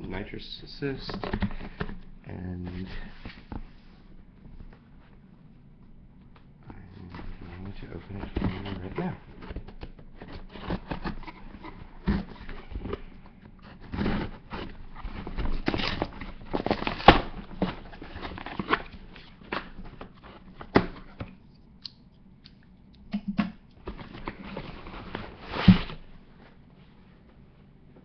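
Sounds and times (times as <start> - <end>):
cardboard rustling and tearing: 7.1 - 21.3, 23.9 - 26.1.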